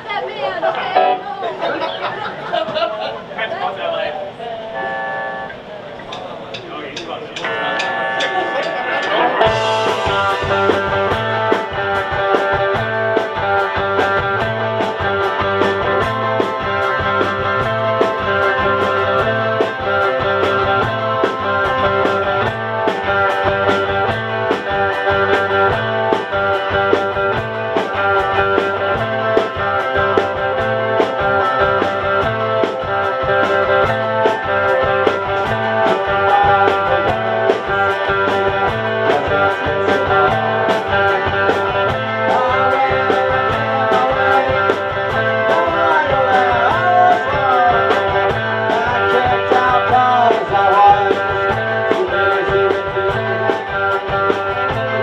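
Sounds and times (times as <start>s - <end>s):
live rock band playing: 0.0s - 2.6s, 4.4s - 6.7s, 7.4s - 55.0s.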